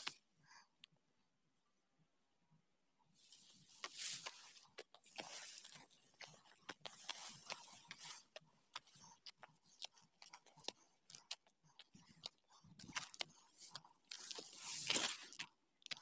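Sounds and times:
grass rustling: 3.2 - 10.3, 12.9 - 16.0
footsteps on dry grass: 3.2 - 10.7, 12.6 - 16.0.

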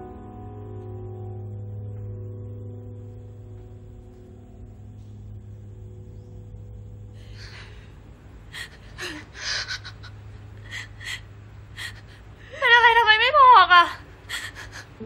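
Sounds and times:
girl crying and sobbing: 7.2 - 15.0.

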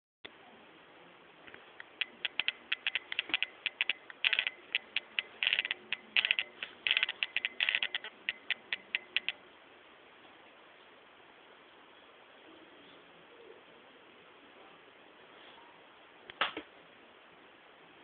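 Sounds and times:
sharp irregular clicks: 1.5 - 9.4.

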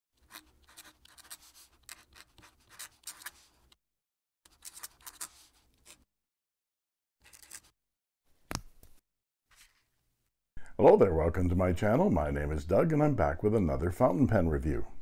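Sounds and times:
pen nib scratching on paper: 0.2 - 3.7, 4.5 - 6.0.

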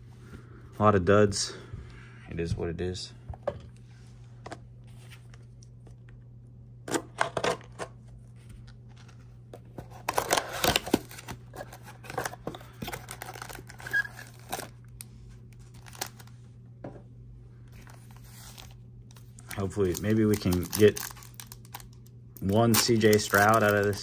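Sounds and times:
steady low hum: 0.0 - 24.0
cardboard tearing and foil rustling: 9.9 - 15.0, 15.6 - 16.3, 17.8 - 18.8, 19.5 - 21.9, 22.5 - 24.0.

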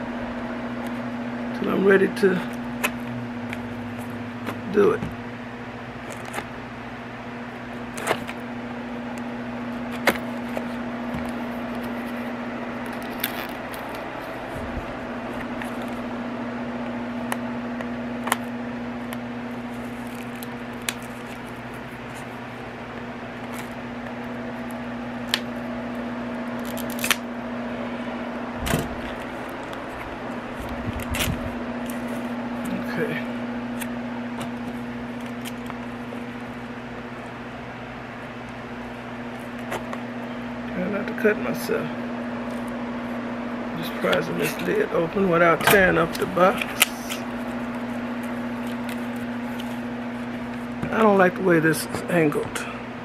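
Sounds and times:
low electrical hum: 0.0 - 53.0.

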